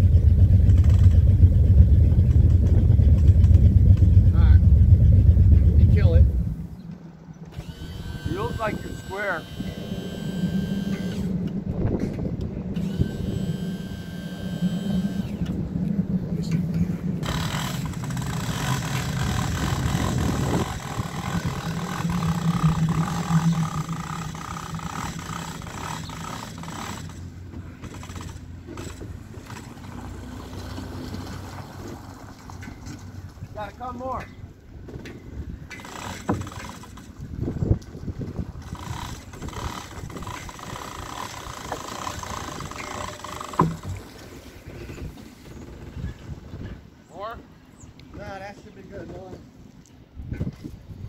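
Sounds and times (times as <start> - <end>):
engine idling: 0.0 - 6.8, 12.8 - 29.7.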